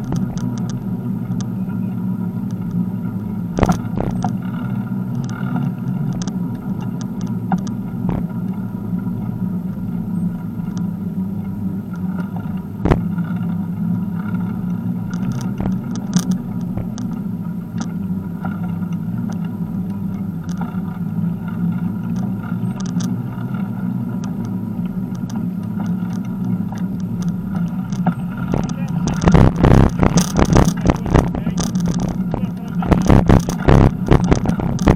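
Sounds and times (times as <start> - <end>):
bicycle tyres rumbling on asphalt: 0.0 - 34.9
bike clicks and rattles: 0.0 - 34.9.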